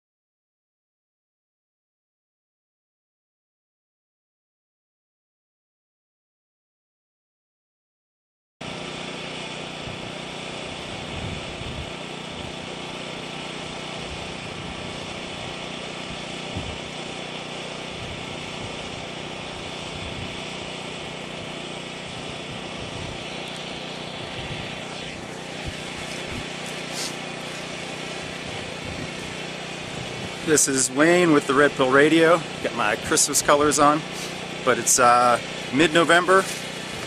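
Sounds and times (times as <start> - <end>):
wind buffeting microphone: 11.0 - 12.0, 16.5 - 16.9, 22.2 - 23.3, 24.2 - 24.8, 25.6 - 26.6, 28.2 - 30.6.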